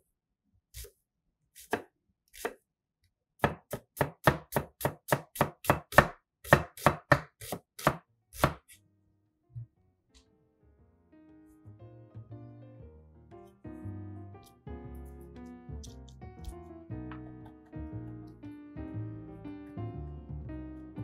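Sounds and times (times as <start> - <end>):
knife chopping on cutting board: 1.5 - 2.6, 3.4 - 8.8.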